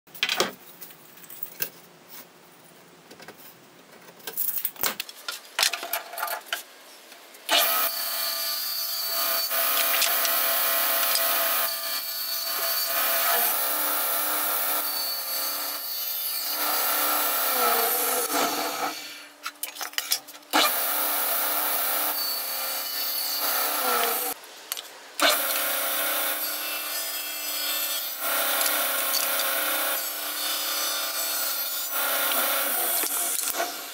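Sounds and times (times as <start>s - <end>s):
table saw cutting wood: 7.5s - 19.3s, 20.5s - 24.4s, 25.2s - 33.9s.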